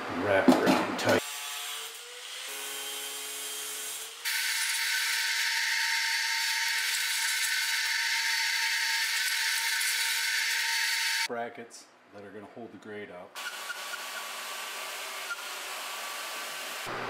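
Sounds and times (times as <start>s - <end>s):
drill bit cutting steel: 3.9s - 11.3s, 13.4s - 16.8s.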